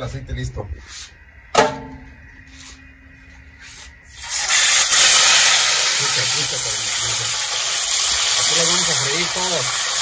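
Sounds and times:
food sizzling in hot oil: 0:04.0 - 0:10.0.

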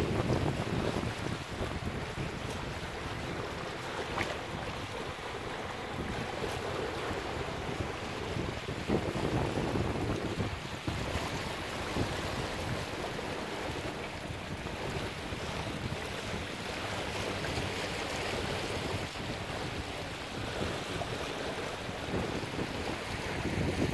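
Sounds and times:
water rushing along hull: 0:00.0 - 0:23.9
wind buffeting microphone: 0:00.0 - 0:23.9.

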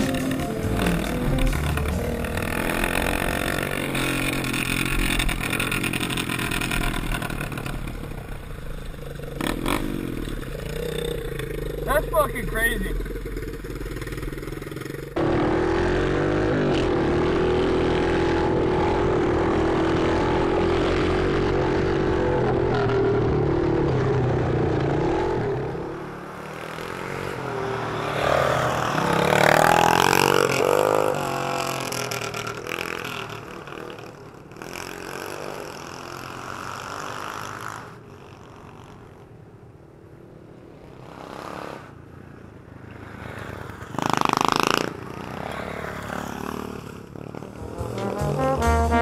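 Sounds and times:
pit bike engine running: 0:00.0 - 0:18.0, 0:44.0 - 0:49.0
off-road engines revving past: 0:00.0 - 0:49.0.

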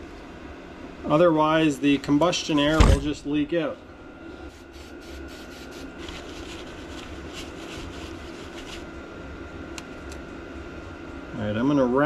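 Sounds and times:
steady hum: 0:00.0 - 0:12.0
paper towel wiping metal: 0:04.5 - 0:08.8.

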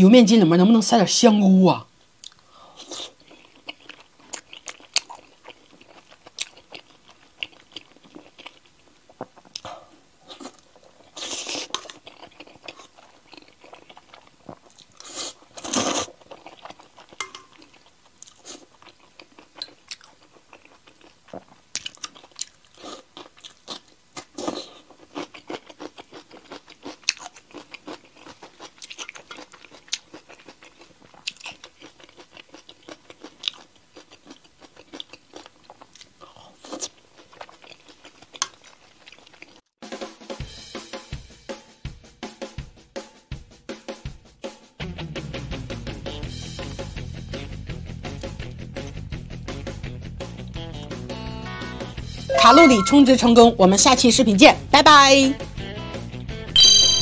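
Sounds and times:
person chewing food: 0:02.2 - 0:39.6.

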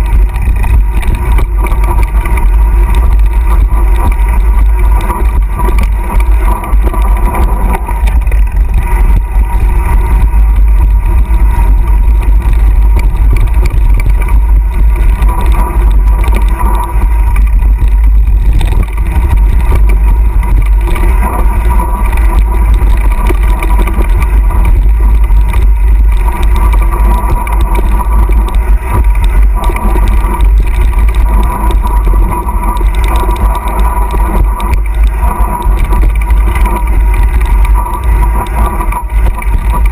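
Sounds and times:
bike rattling on dirt trail: 0:00.0 - 0:39.9
wind buffeting microphone: 0:00.0 - 0:39.9.

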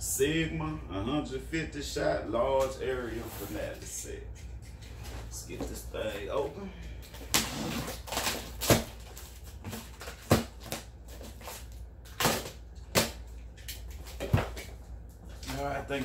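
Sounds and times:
cardboard rustling and scraping: 0:03.0 - 0:03.9
cardboard snaps and knocks: 0:07.2 - 0:14.7.

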